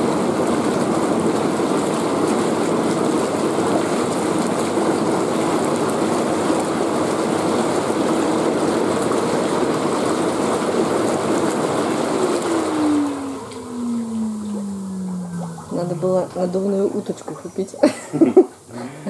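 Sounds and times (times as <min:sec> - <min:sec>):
air blower humming: 0:00.0 - 0:18.7
water bubbling and churning: 0:11.4 - 0:17.8.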